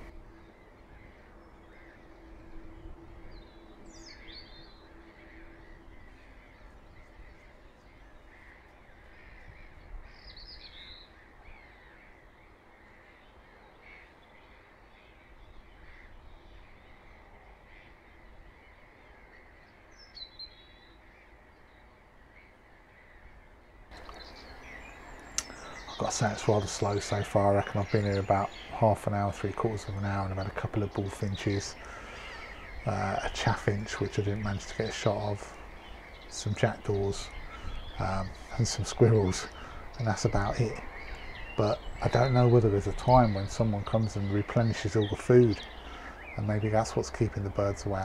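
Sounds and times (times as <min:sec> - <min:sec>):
crows calling: 0:00.0 - 0:48.0
small bird sharp calls: 0:00.0 - 0:48.0.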